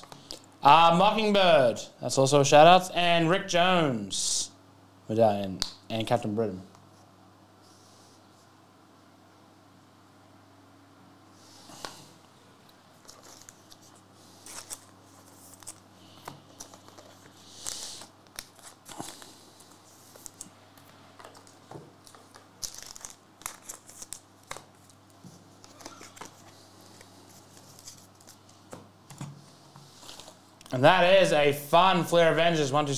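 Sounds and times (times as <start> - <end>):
foil wrappers crinkling: 13.0 - 20.5, 21.2 - 28.5
cards being handled: 13.0 - 30.4.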